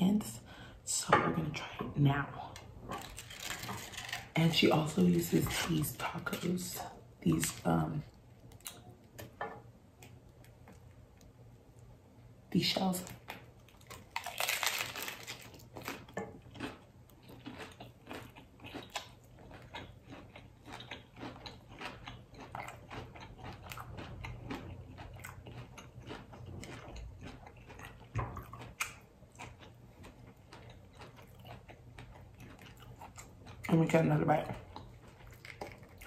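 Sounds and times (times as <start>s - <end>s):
person crunching taco: 2.6s - 4.3s, 13.4s - 33.7s, 34.7s - 36.0s.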